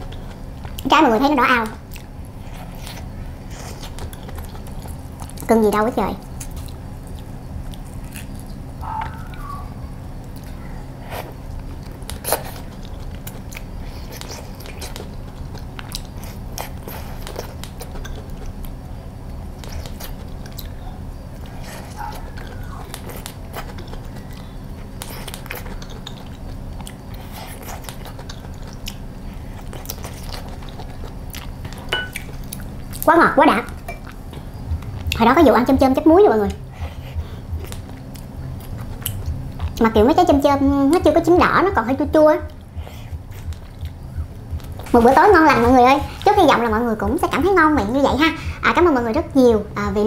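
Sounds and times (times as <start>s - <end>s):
steady low hum: 0.0s - 50.0s
chewing mouth sounds: 6.2s - 9.6s, 10.2s - 20.8s, 21.4s - 33.1s, 36.5s - 39.8s, 42.5s - 46.6s.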